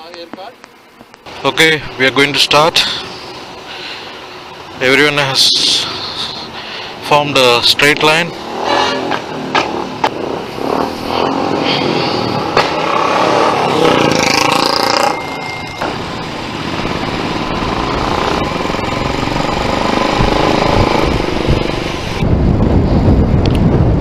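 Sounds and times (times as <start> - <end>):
road and wind noise: 0.0 - 24.0
motorcycles pulling away: 2.3 - 22.3
motorcycle engine running steadily: 11.8 - 24.0.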